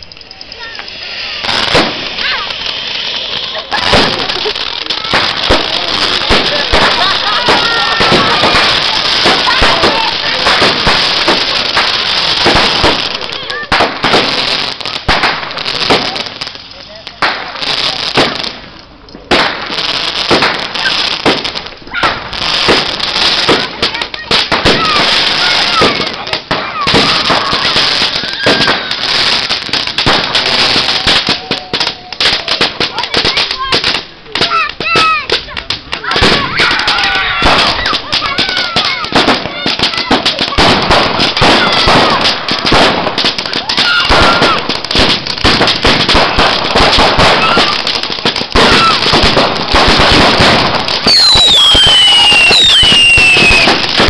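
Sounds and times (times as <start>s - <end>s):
firework whistles: 0.0s - 16.2s, 24.4s - 32.7s, 39.0s - 54.0s
fireworks bangs and crackles: 0.0s - 54.0s
loud falling whistle: 51.1s - 53.7s.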